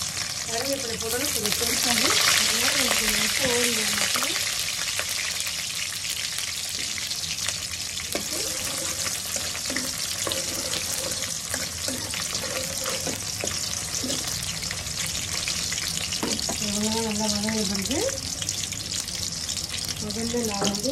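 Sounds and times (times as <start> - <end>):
oil sizzling and crackling: 0.0 - 20.9
metal spoon stirring: 8.1 - 14.4.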